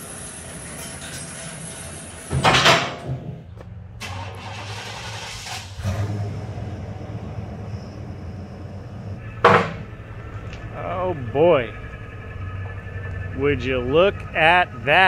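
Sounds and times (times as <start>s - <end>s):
pickup engine starting and idling: 3.8s - 15.0s.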